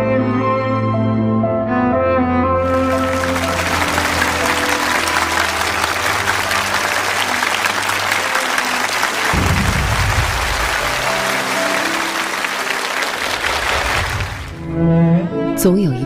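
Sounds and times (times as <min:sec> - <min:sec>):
audience applauding: 0:02.6 - 0:14.7
soft cello music: 0:14.6 - 0:15.9.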